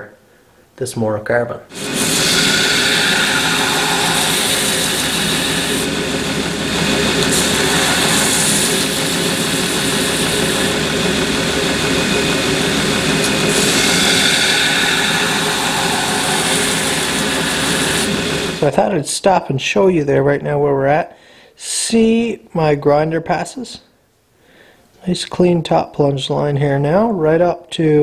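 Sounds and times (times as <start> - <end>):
knife blade grinding hiss: 1.7 - 6.0, 6.8 - 10.8, 13.2 - 18.5
belt grinder running: 1.7 - 18.7.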